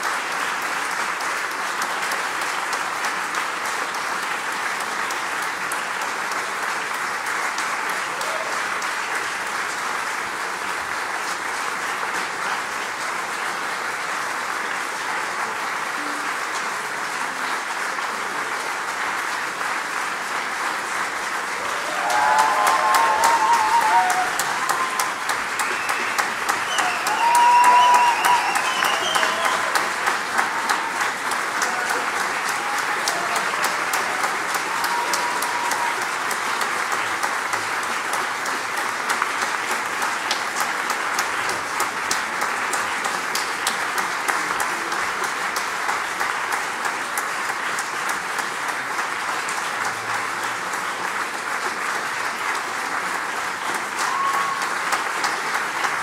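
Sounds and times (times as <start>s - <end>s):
audience applauding: 0.0s - 56.0s.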